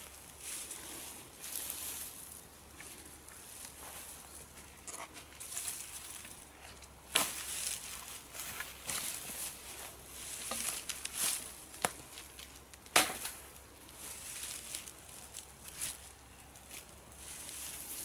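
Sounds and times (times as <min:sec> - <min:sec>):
branches rustling and crackling: 0:00.0 - 0:18.0
wood snapping: 0:10.4 - 0:13.4.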